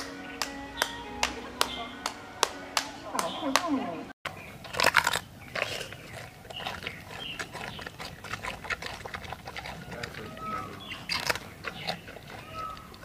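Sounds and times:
panda chewing bamboo crunches: 4.3 - 13.0.

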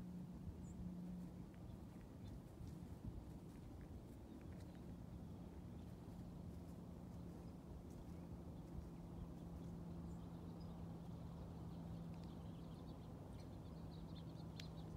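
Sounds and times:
steady low hum: 0.0 - 14.9
faint small bird chirps: 8.7 - 14.9.

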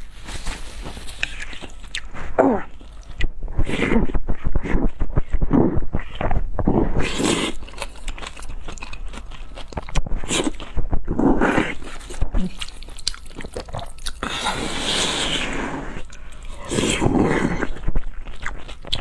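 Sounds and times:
wet sticky chewing: 0.8 - 19.0
slurping noodles: 1.2 - 8.0, 10.2 - 12.8, 13.5 - 19.0.

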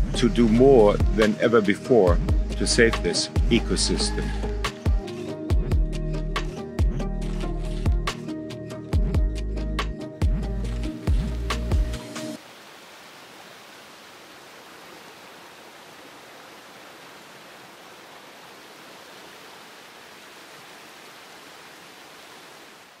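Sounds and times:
music: 0.0 - 12.4
river water rushing: 12.4 - 23.0.

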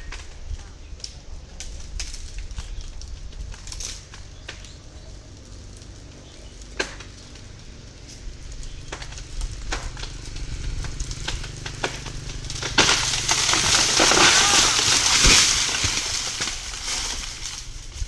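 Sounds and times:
steady low hum: 0.0 - 14.1
palm trunk cracking: 0.0 - 18.0.

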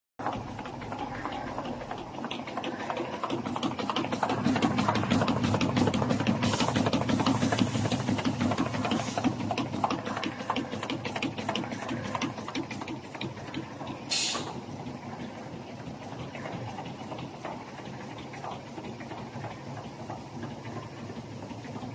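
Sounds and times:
short hiss: 14.1 - 14.5.

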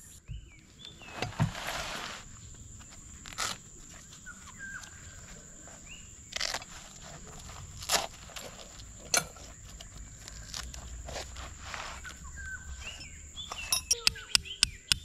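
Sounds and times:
bird chirps: 0.0 - 1.2, 2.3 - 6.5, 9.1 - 15.0
canvas rustling: 0.6 - 13.7
metal tent pegs clinking: 7.8 - 10.7, 12.7 - 14.2.

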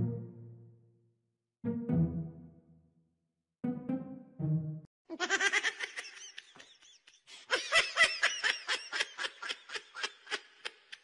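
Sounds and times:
brief music: 1.6 - 2.8, 3.6 - 4.9
person laughing hard: 5.1 - 11.0.

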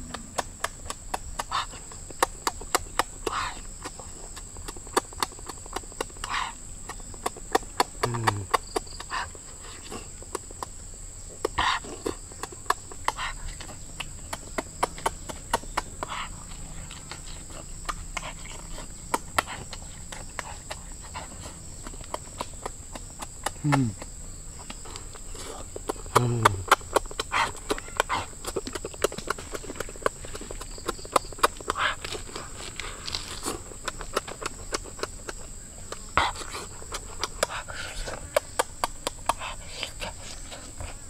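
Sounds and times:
person chewing with wet smacks: 0.0 - 41.0
person humming mm: 8.0 - 8.6, 23.4 - 24.0, 25.5 - 26.8.

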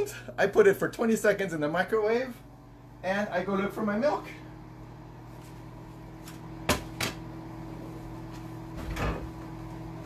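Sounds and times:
microwave oven humming: 0.0 - 10.0
refrigerator door opening: 8.7 - 9.5.

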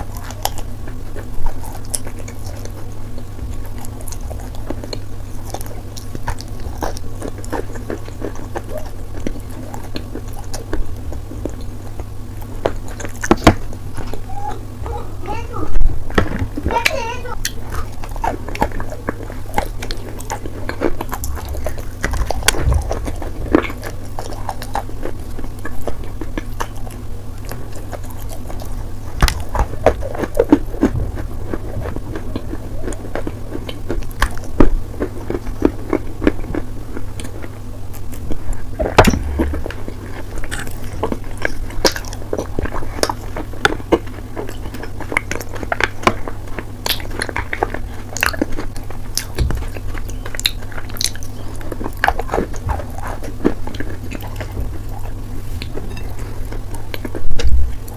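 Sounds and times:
chewing crunches: 0.0 - 57.9.

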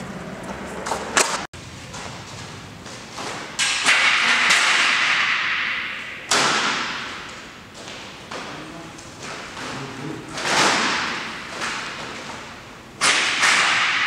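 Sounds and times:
roller shutter sharp knocks: 3.2 - 7.5, 10.4 - 14.0.

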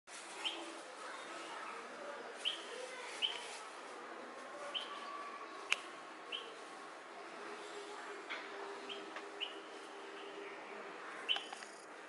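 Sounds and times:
background noise: 0.1 - 12.0
bird chirping: 4.7 - 5.1, 5.7 - 6.6, 8.8 - 11.8.

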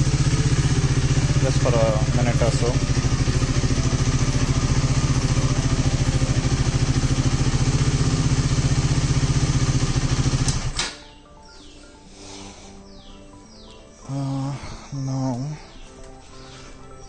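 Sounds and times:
motorcycle engine idling: 0.0 - 11.6.

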